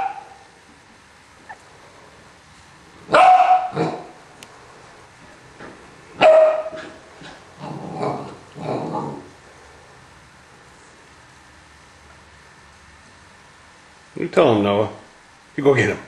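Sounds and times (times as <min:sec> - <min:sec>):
dogs barking: 0:00.0 - 0:00.4, 0:03.1 - 0:04.2, 0:06.2 - 0:08.8.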